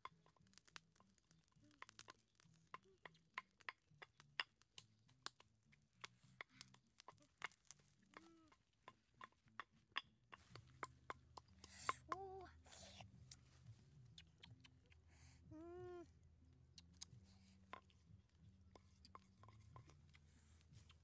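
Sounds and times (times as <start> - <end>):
wood fire crackling: 0.0 - 15.1.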